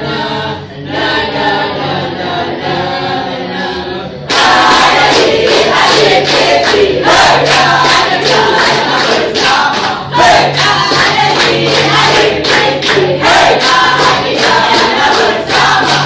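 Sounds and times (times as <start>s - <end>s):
group singing in chorus: 0.0s - 16.0s
people clapping along: 4.3s - 16.0s.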